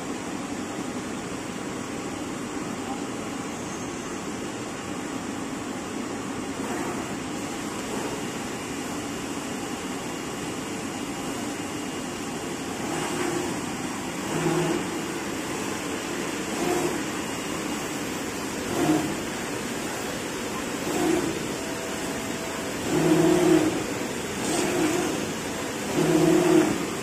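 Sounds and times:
cutting machine whirring drone: 12.7s - 15.6s, 18.6s - 19.3s, 20.8s - 26.9s.

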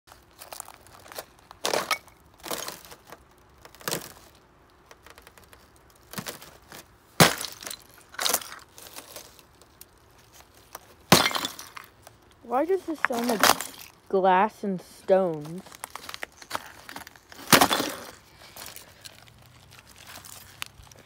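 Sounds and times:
ice cracking under footsteps: 4.9s - 12.0s, 12.9s - 14.0s, 15.3s - 21.0s.

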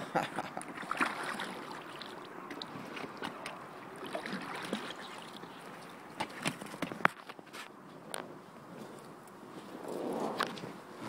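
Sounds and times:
water washing around kayak hull: 0.0s - 7.6s.

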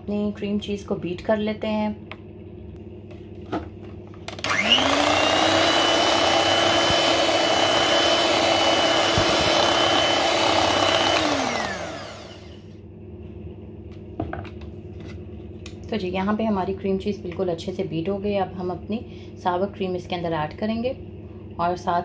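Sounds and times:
electric hand mixer whining: 4.3s - 12.7s.

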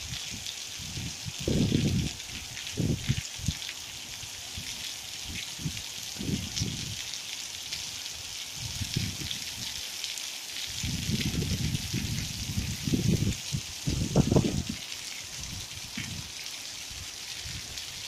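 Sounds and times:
rain falling on rock and grass: 0.0s - 18.0s
low microphone rumbles: 13.9s - 14.8s.

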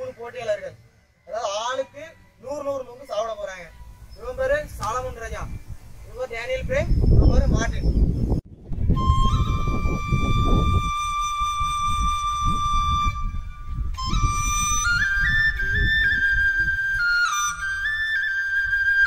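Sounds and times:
flute melody: 8.6s - 19.0s.

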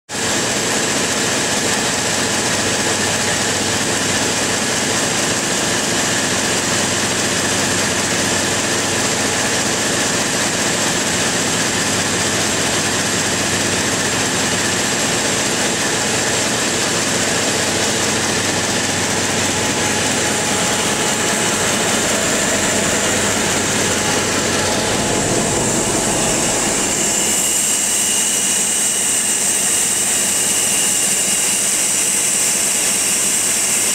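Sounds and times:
large generator engine running: 0.2s - 33.9s
faint high whine: 17.0s - 30.2s.

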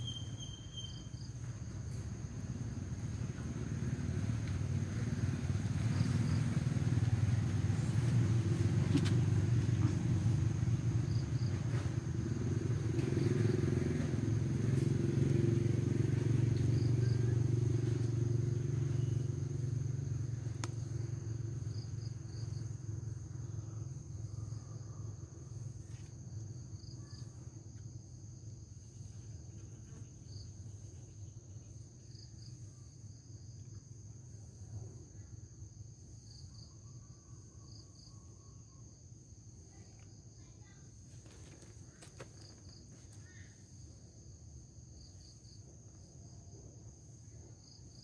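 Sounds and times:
high insect drone: 0.0s - 48.0s
passing vehicle engine rumble: 0.2s - 26.9s.

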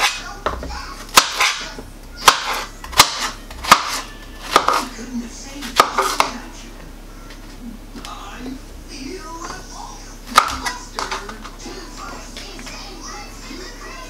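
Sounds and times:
knife striking cutting board: 1.1s - 4.9s.

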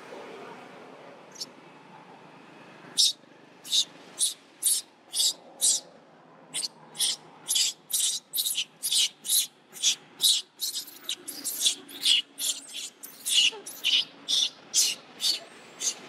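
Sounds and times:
baby monkey screaming: 3.0s - 5.8s, 6.6s - 16.0s.

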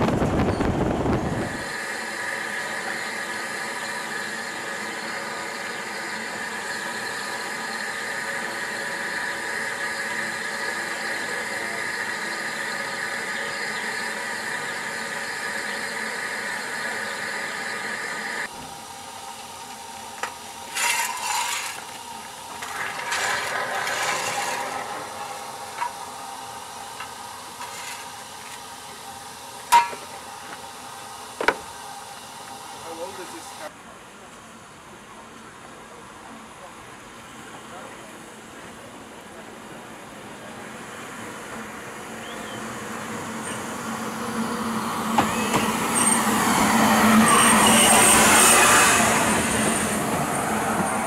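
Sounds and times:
steam hissing: 0.0s - 33.7s, 39.4s - 51.0s
sharp metallic clank: 29.7s - 30.2s.

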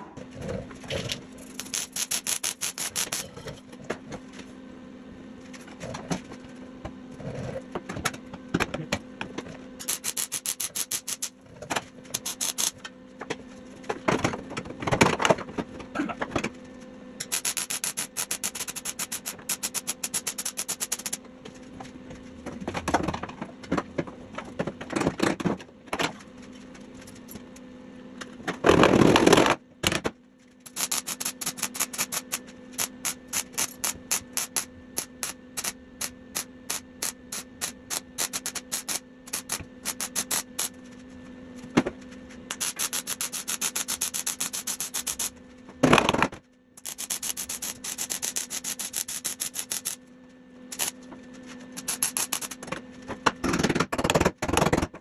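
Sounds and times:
steady welder hum: 0.0s - 14.0s, 15.8s - 22.4s, 26.2s - 53.9s
welder crackling: 1.4s - 3.3s, 9.8s - 11.3s, 12.1s - 12.8s, 17.2s - 21.2s, 30.7s - 40.8s, 42.5s - 45.3s, 46.8s - 50.0s, 50.7s - 51.0s, 51.7s - 52.6s.

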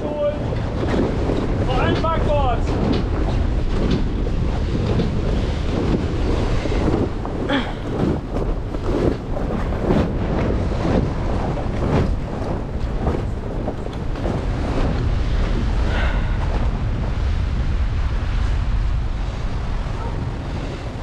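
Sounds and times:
sea waves washing: 0.0s - 21.0s
wind buffeting microphone: 0.0s - 21.0s.

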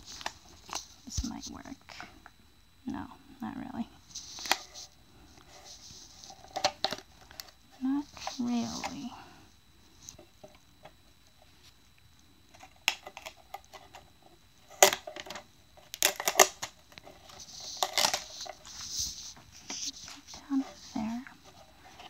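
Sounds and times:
rustling: 4.0s - 14.2s, 15.2s - 22.0s.

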